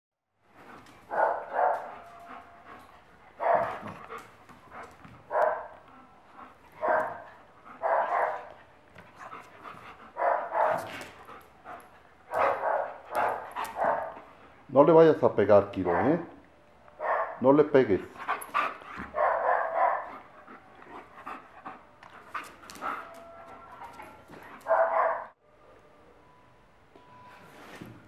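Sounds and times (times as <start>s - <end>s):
dogs barking: 1.1s - 2.6s, 3.4s - 4.2s, 5.3s - 5.8s, 6.8s - 8.6s, 10.1s - 11.0s, 12.3s - 14.2s, 15.8s - 16.4s, 17.0s - 17.4s, 18.3s - 20.4s, 22.7s - 25.4s.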